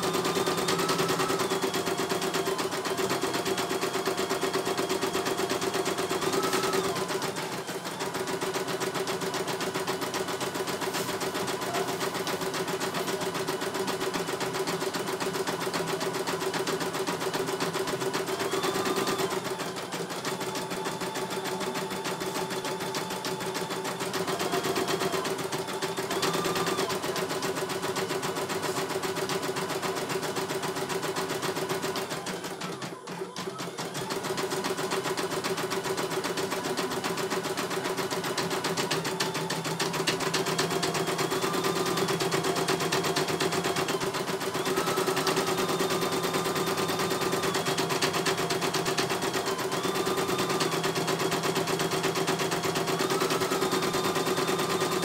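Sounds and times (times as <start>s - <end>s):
embroidery machine stitching: 0.0s - 55.0s.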